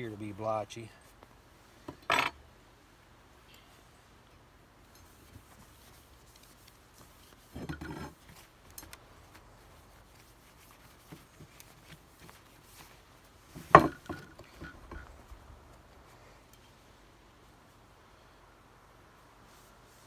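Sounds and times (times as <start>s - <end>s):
cloth rubbing on metal barrel: 5.0s - 8.6s, 9.2s - 15.2s.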